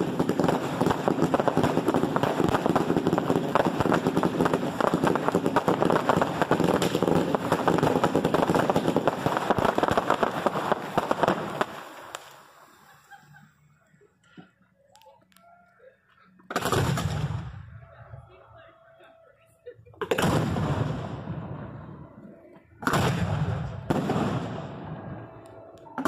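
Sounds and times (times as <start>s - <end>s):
fireworks shots and crackle: 0.0s - 13.2s, 16.5s - 17.8s, 20.0s - 22.0s, 22.8s - 26.0s.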